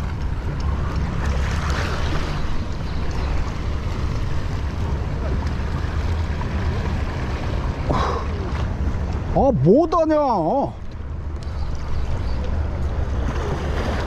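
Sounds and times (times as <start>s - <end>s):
waves lapping on rocks: 0.0s - 10.7s, 11.3s - 14.0s.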